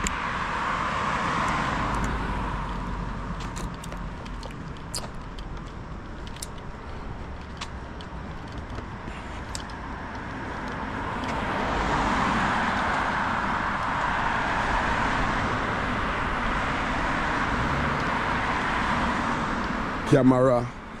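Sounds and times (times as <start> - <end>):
car driving by: 10.3 - 20.1.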